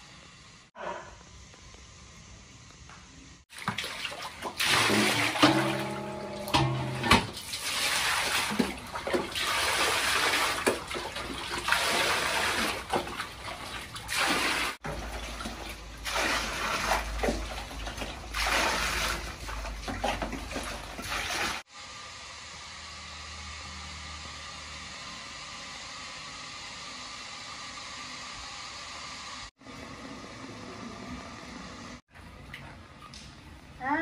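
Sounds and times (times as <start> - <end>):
water splashing into metal basin: 3.5 - 21.6
low steady hum: 5.1 - 7.3.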